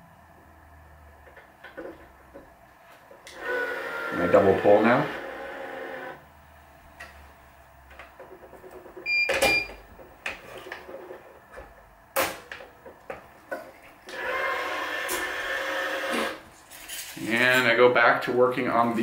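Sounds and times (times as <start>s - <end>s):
motor humming: 3.2s - 6.2s.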